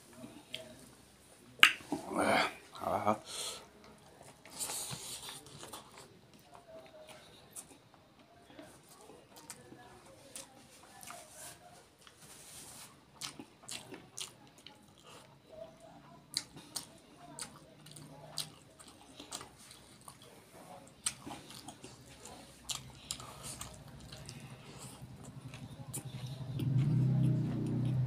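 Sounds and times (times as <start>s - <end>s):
person chewing food: 12.0s - 15.7s, 16.3s - 28.0s.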